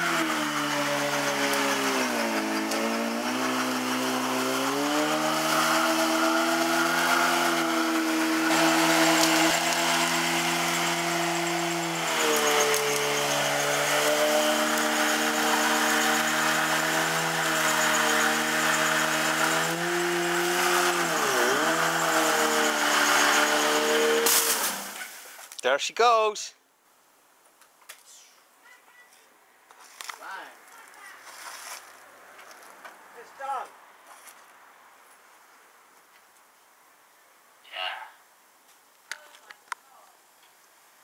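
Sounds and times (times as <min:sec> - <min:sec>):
motorcycle engine revving high: 0:00.0 - 0:25.0.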